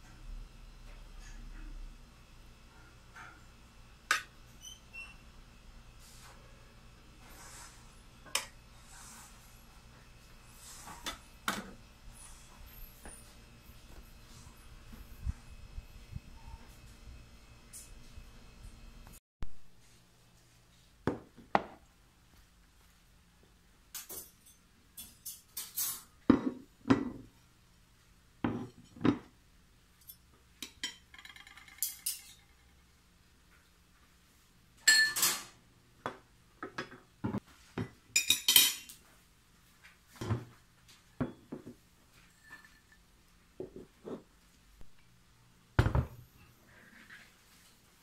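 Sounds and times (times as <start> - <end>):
tableware clinking on table: 30.0 - 32.7, 34.8 - 35.6, 38.2 - 38.9.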